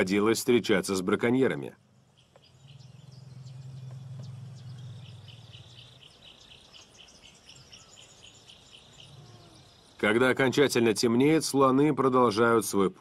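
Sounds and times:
birds chirping: 0:00.0 - 0:13.0
insects chirping: 0:01.7 - 0:11.6
low steady rumble: 0:01.8 - 0:06.3.

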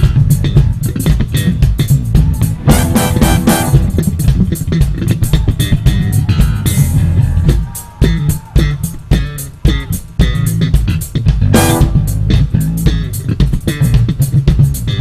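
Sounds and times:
electric bass funk solo: 0:00.0 - 0:15.0.

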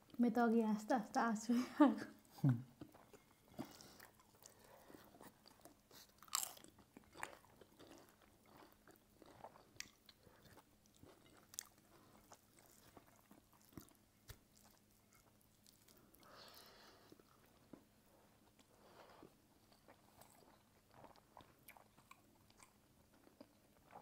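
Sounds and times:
chewing crisp food crunches: 0:02.8 - 0:18.7, 0:19.6 - 0:24.0.

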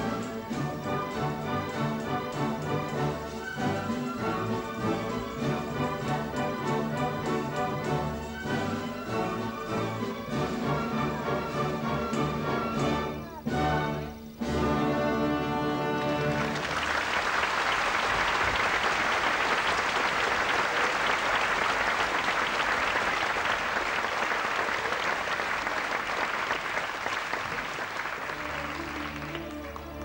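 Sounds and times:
orchestra playing: 0:00.0 - 0:30.0
audience applauding: 0:15.9 - 0:30.0.

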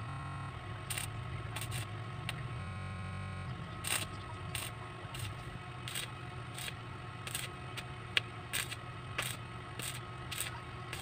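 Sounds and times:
welding machine hum: 0:00.0 - 0:11.0
welding arc crackling: 0:00.8 - 0:01.9, 0:03.8 - 0:11.0.

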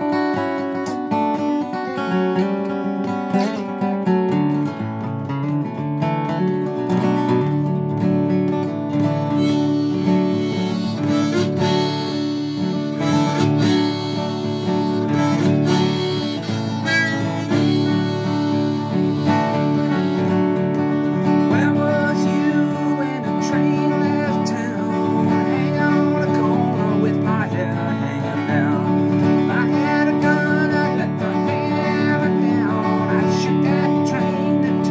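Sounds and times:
acoustic guitar flatpicking: 0:00.0 - 0:34.9
harmonica chords: 0:08.9 - 0:34.9.

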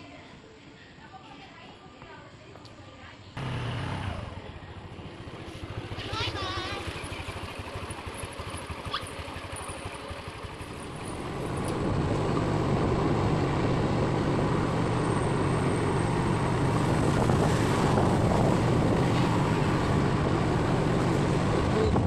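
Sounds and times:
road noise: 0:00.0 - 0:22.0
motor scooter engine: 0:03.4 - 0:22.0
rushing wind: 0:10.4 - 0:22.0.

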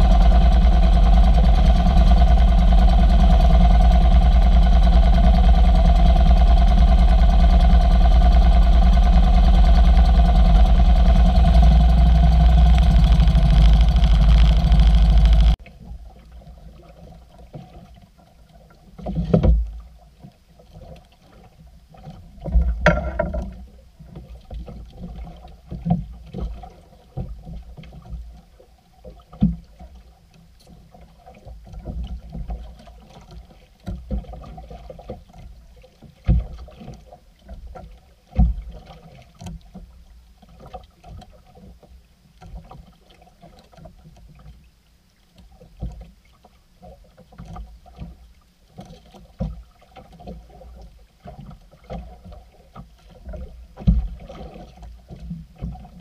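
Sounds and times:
water lapping against boat hull: 0:00.0 - 0:56.0
low thumps and knocks: 0:22.6 - 0:23.6.

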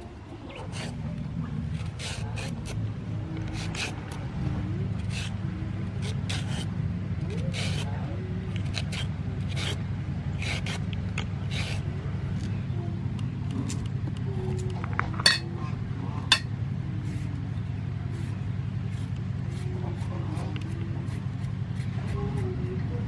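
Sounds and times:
peeler scraping a carrot: 0:00.0 - 0:12.5, 0:18.1 - 0:23.0
steady low hum: 0:00.0 - 0:23.0.

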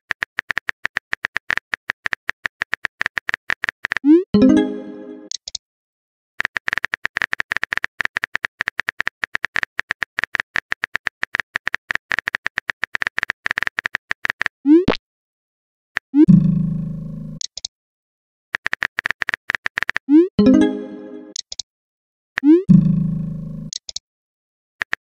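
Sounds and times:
rising pop message sent: 0:04.3 - 0:05.3, 0:20.4 - 0:21.3
virtual keyboard tapping clicks: 0:17.4 - 0:17.7, 0:18.6 - 0:21.6, 0:23.7 - 0:24.0.

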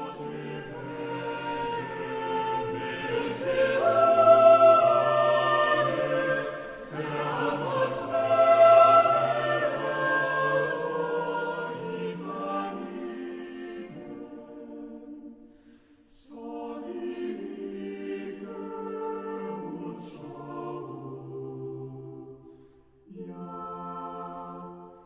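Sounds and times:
choir singing: 0:00.0 - 0:25.0.

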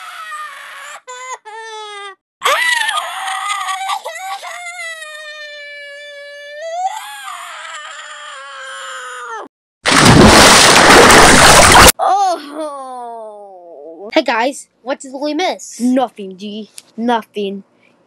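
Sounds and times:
cartoon character high-pitched scream: 0:02.4 - 0:03.8.

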